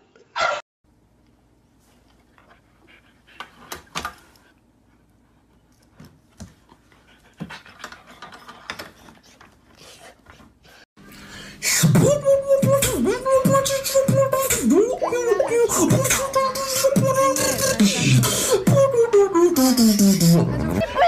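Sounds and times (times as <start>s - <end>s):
dog panting: 2.2s - 10.9s.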